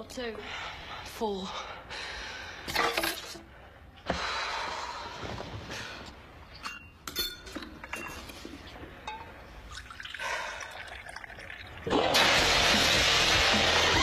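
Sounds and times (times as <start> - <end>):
loud music: 11.9 - 14.0.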